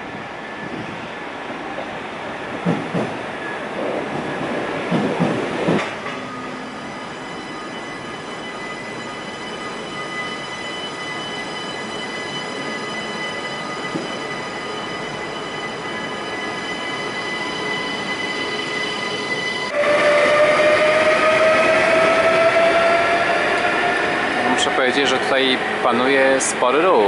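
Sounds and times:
electric train humming and whining: 0:00.0 - 0:27.0.

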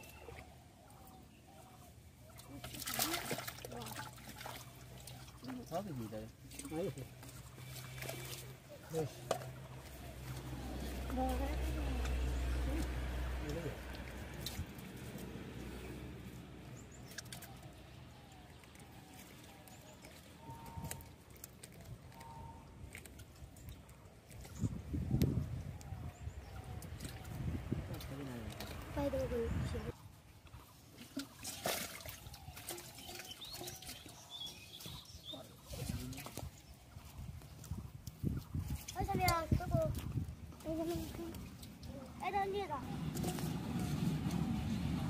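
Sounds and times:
small splashes in water: 0:02.2 - 0:22.2, 0:30.4 - 0:44.9
wet squelching and slapping: 0:02.3 - 0:25.8, 0:30.8 - 0:45.0
light clicks of fish into pots: 0:06.3 - 0:25.9
faint bird calls: 0:16.8 - 0:21.4.

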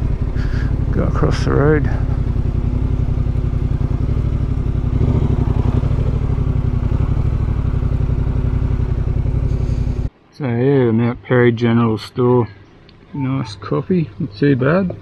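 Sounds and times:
motorcycle engine running at low revs: 0:00.0 - 0:10.1.

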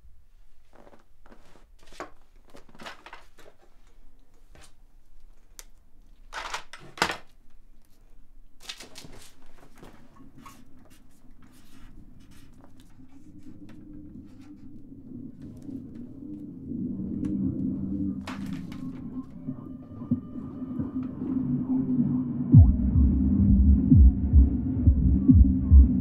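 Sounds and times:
low steady hum: 0:09.6 - 0:26.0.

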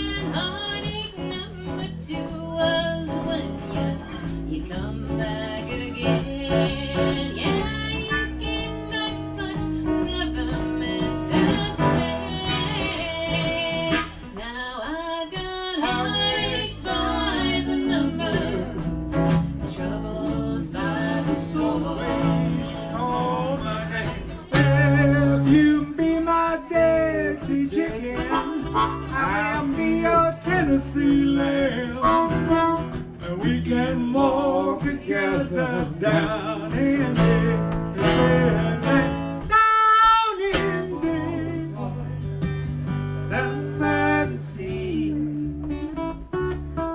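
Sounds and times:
acoustic guitars strumming: 0:00.0 - 0:46.9
harmonica melody: 0:28.2 - 0:30.2, 0:32.0 - 0:33.1.

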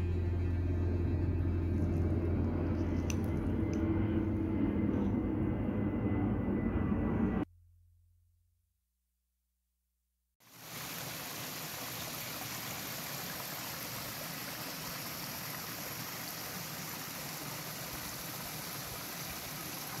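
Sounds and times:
stream running over rocks: 0:10.4 - 0:20.0.

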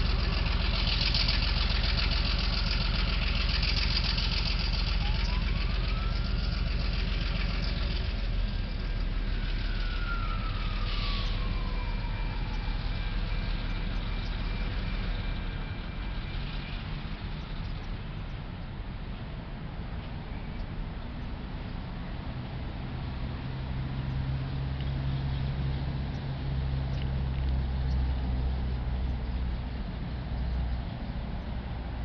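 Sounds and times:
diesel locomotive engine running: 0:00.0 - 0:32.0
faint rising and falling wail: 0:04.8 - 0:16.1.

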